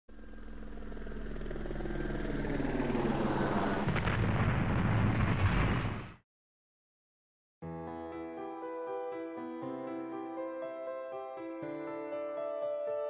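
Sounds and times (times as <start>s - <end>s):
low rumble: 0.1s - 6.2s.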